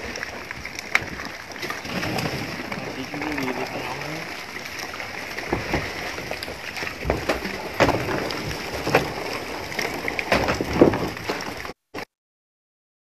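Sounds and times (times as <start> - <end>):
wind and sea hiss: 0.0 - 11.3
fish crates knocking and clattering: 5.4 - 11.8.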